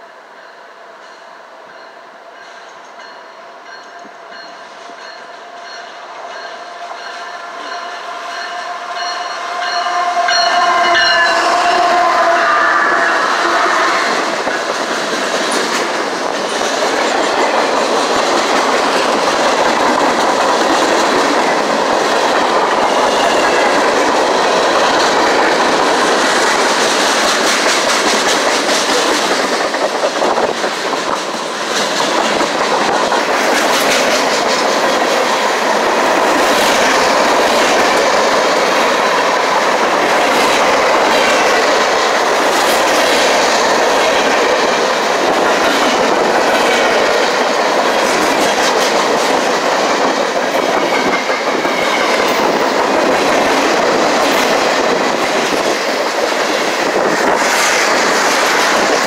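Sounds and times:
clattering train wheels: 0.0 - 59.0
freight train rumbling past: 0.0 - 59.0
locomotive pitched tone: 2.5 - 14.5.

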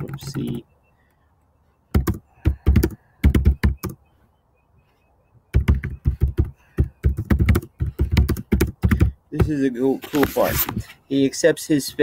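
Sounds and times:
typing on computer keyboard: 5.6 - 9.1.

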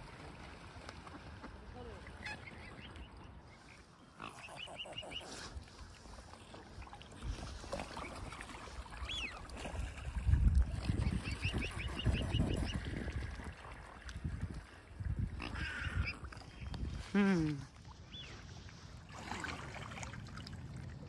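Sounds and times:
waterfowl calling: 1.0 - 5.7, 7.8 - 9.7, 10.9 - 12.9, 15.4 - 16.7.

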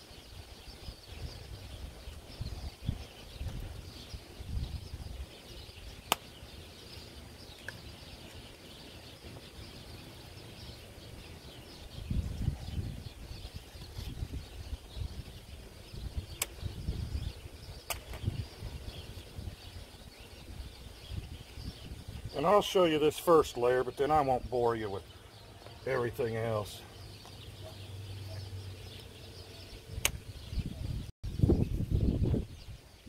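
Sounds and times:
faint bird chirps: 0.0 - 33.0
wind on microphone: 0.1 - 6.0, 11.4 - 23.1, 29.7 - 33.0
sharp clicks: 16.4 - 16.6, 30.0 - 30.2.

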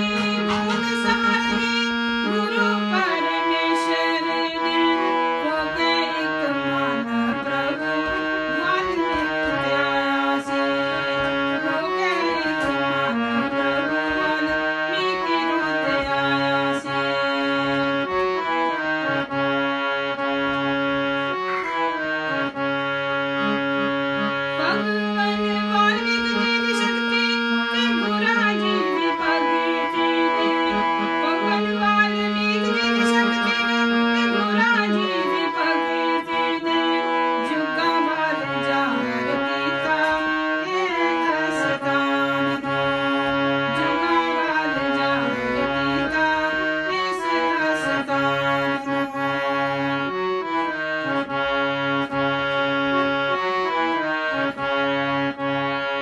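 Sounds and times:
woman singing: 0.0 - 18.8, 24.5 - 50.0
harmonium melody with drone: 0.0 - 56.0.

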